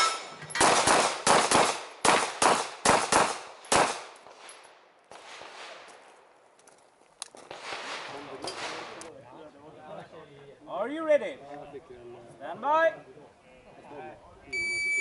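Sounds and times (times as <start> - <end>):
pistol shots echoing: 0.6 - 4.1.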